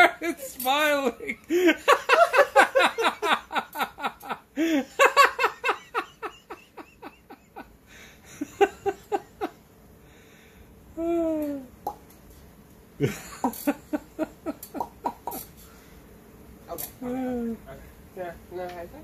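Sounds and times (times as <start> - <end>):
person laughing: 0.0 - 9.6, 11.0 - 11.7, 13.0 - 15.4.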